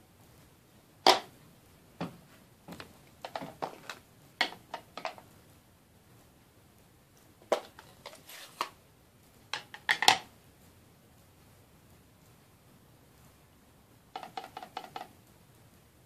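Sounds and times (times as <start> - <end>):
plastic clacking on glass: 14.2 - 15.2.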